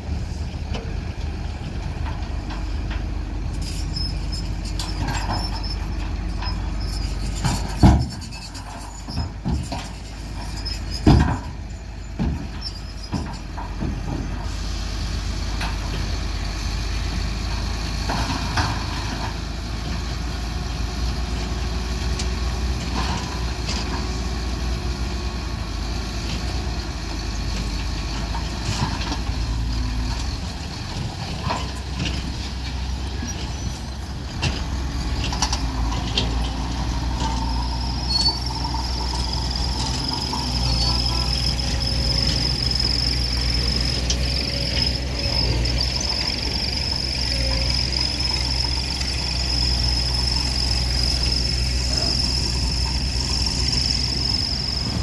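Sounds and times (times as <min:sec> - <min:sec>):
diesel engine running: 0:00.0 - 0:55.0
hydraulic hoist tipping: 0:31.6 - 0:55.0.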